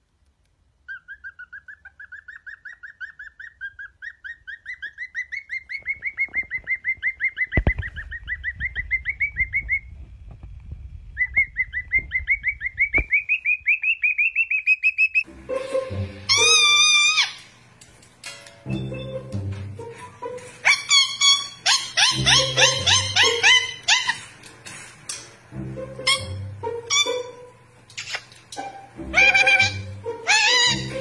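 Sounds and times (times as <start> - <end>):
cockatiel chirping: 0.9 - 9.9, 11.2 - 15.3, 16.3 - 17.4, 20.6 - 24.3, 29.1 - 30.9.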